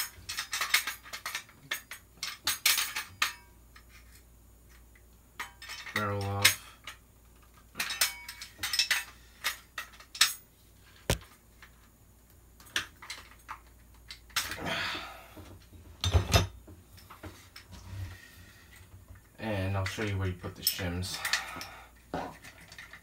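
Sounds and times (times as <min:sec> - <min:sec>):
metal parts clicking and clinking: 0:00.0 - 0:10.4, 0:18.7 - 0:23.0.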